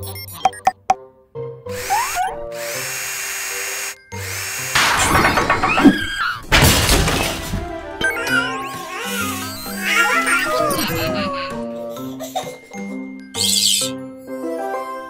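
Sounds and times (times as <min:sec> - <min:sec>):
background music: 0:00.0 - 0:15.0
cartoon drill whirring: 0:01.7 - 0:06.4
clattering tool noise: 0:04.4 - 0:07.7.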